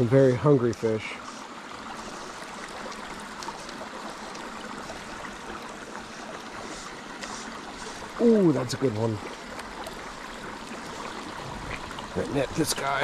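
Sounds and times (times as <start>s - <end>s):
creek flowing over rocks: 0.0s - 13.0s.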